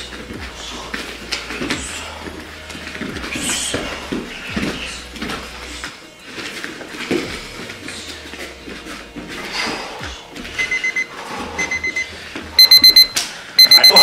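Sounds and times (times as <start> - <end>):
digital timer beeping: 10.6 - 14.0.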